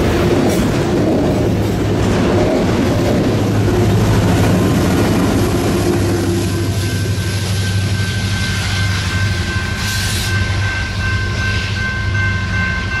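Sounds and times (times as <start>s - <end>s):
diesel locomotive engine: 0.0s - 13.0s
high ringing: 6.0s - 13.0s.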